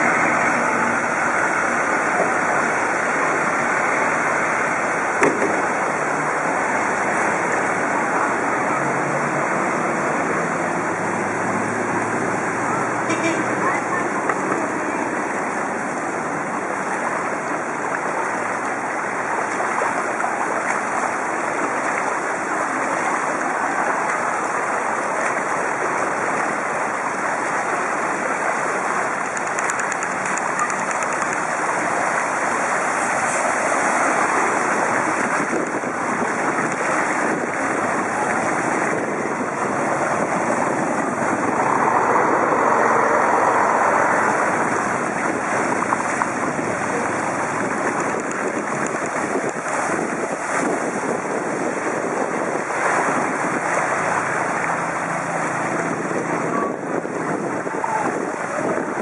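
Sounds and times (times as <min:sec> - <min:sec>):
bicycle riding through water: 0:00.0 - 0:59.0
wind noise on microphone: 0:29.0 - 0:59.0.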